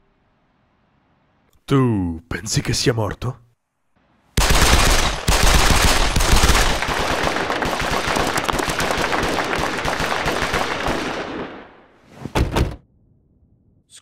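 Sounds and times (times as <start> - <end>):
pistol gunshots: 4.4 - 11.8.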